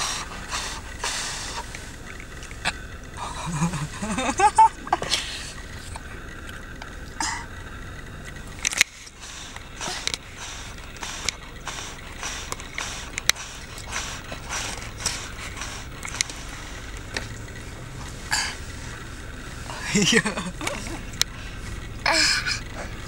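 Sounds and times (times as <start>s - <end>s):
low steady rumble: 0.0s - 23.0s
toddler chewing crunchy food: 9.7s - 16.6s.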